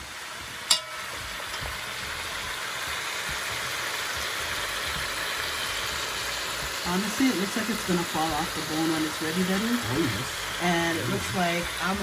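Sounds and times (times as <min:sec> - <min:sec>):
meat sizzling in a pot: 0:00.0 - 0:12.0
metal fork clinking on pot: 0:00.7 - 0:01.7.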